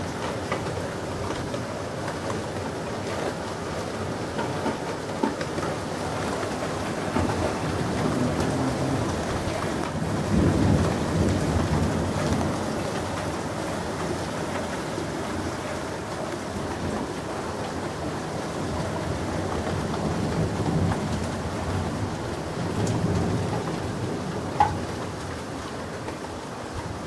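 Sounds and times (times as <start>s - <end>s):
rain falling: 0.0s - 27.0s
low rumble of thunder: 6.2s - 14.3s, 18.0s - 25.6s.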